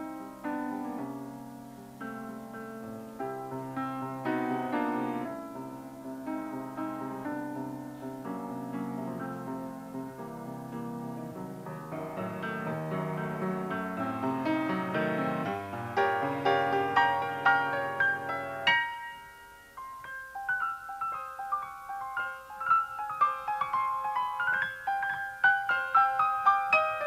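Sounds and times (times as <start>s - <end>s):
piano music: 0.0s - 27.0s.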